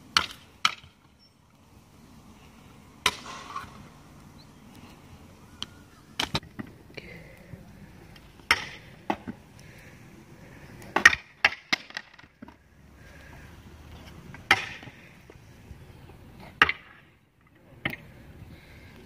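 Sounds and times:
scooter clattering on concrete: 14.3s - 15.0s.

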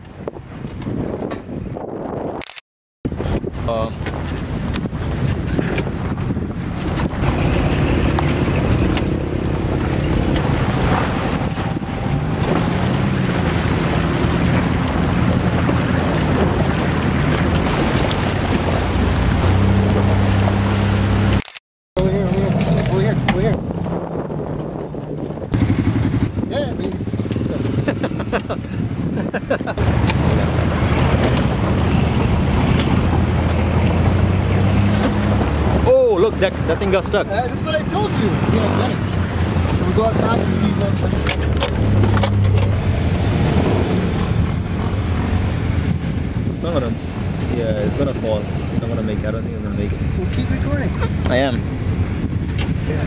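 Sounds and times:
wind buffeting microphone: 0.0s - 2.4s, 3.1s - 21.3s, 22.0s - 53.0s
low rumble: 3.1s - 21.4s
water rushing and splashing: 3.1s - 21.4s, 29.6s - 53.0s
car engine running: 4.0s - 21.4s.

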